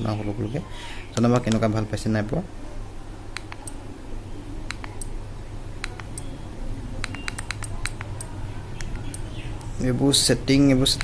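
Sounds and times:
low steady hum: 0.0s - 11.0s
small buttons clicking: 3.4s - 3.8s, 4.6s - 5.1s, 5.8s - 6.3s, 7.0s - 9.7s.

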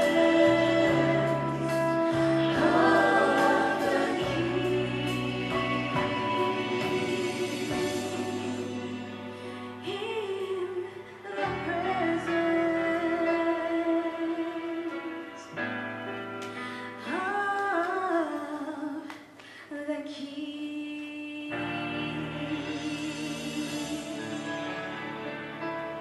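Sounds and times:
gospel group singing: 0.0s - 9.9s
instrumental accompaniment: 0.0s - 17.9s, 21.5s - 26.0s.

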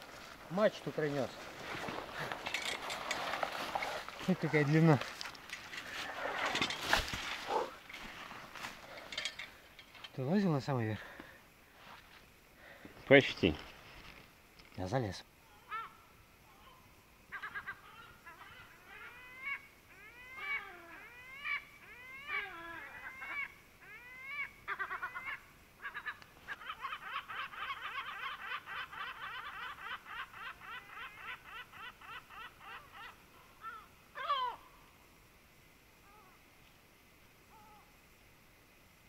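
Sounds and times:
gull calling: 15.5s - 34.8s.

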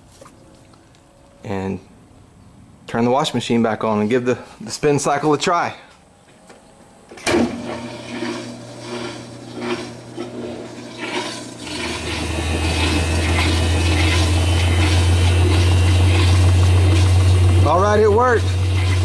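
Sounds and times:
washing machine motor hum: 7.2s - 19.0s
water draining: 7.3s - 17.7s, 18.4s - 19.0s.

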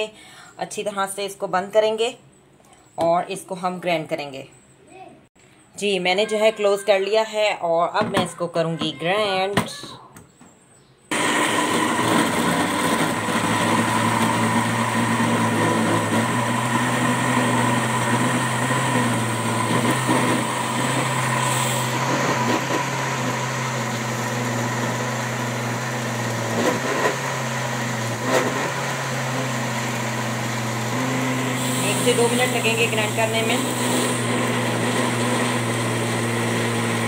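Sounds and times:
electric grinder whirling: 11.1s - 37.0s.

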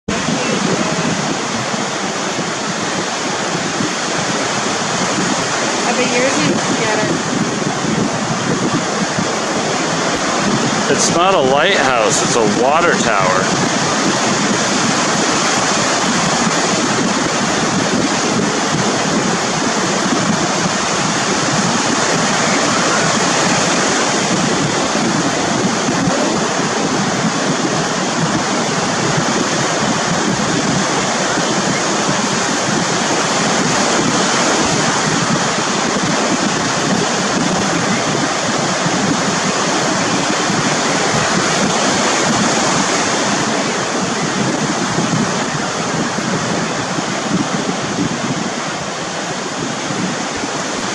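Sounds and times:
ocean surf breaking on beach: 0.1s - 50.9s.

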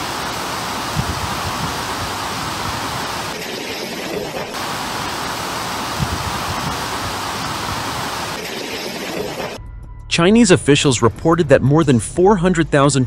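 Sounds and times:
heavy rain: 0.0s - 9.6s
typhoon wind: 0.0s - 9.6s
wind gusts hitting microphone: 0.7s - 3.3s, 5.8s - 8.4s.

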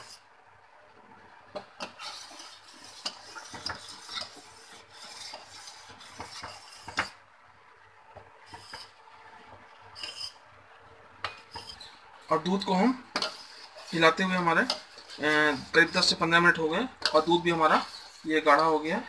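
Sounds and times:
ladle scraping steel pan: 1.8s - 7.2s, 10.0s - 10.4s, 11.4s - 19.0s.

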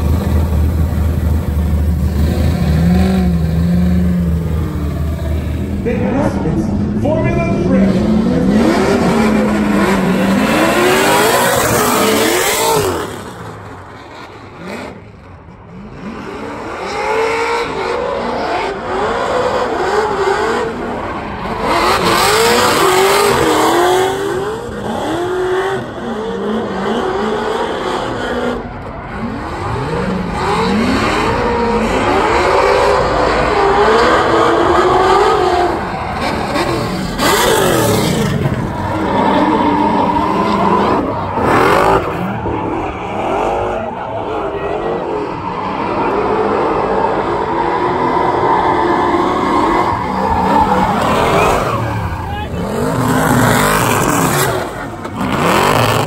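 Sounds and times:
car engines revving: 0.0s - 56.0s
tyres screeching: 47.2s - 56.0s.

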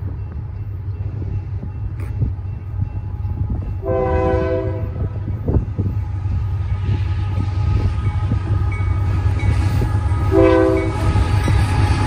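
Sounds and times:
locomotive low rumble: 0.0s - 12.0s
locomotive air horn: 3.8s - 5.2s, 10.3s - 11.1s.

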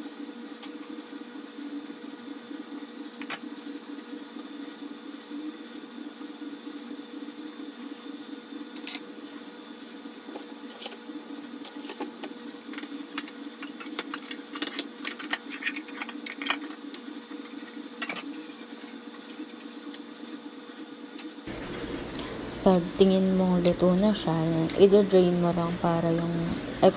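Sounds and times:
chicken frying in oil: 0.0s - 26.9s
oil crackling and popping: 10.2s - 20.1s.

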